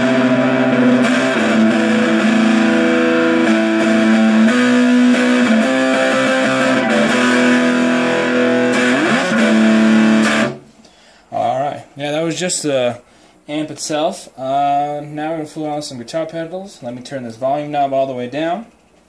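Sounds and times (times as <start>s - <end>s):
electric guitar chords: 0.0s - 10.8s.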